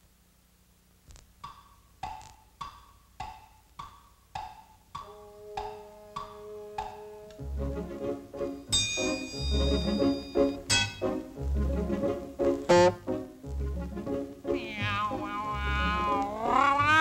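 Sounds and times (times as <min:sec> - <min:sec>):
wood block tick-tock: 0:01.4 - 0:07.4, 0:08.7 - 0:11.1
sustained orchestral chord: 0:05.1 - 0:16.1.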